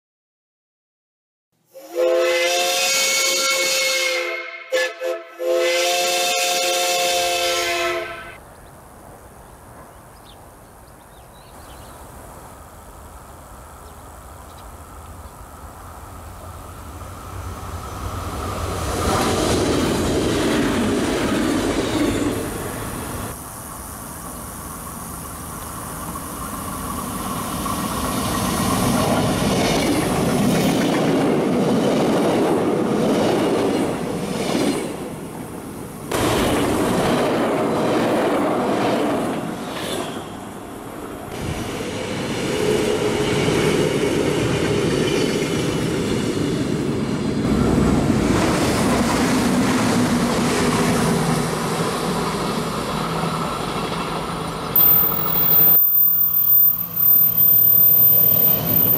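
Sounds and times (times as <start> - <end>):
train horn chord: 1.7 - 8.4
electric train passing: 1.9 - 58.9.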